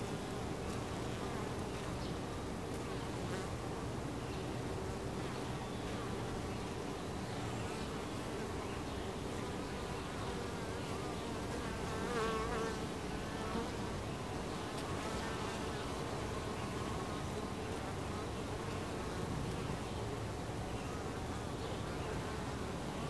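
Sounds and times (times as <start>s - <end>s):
bees buzzing at hive: 0.0s - 23.0s
single bee buzzing close: 10.2s - 14.0s.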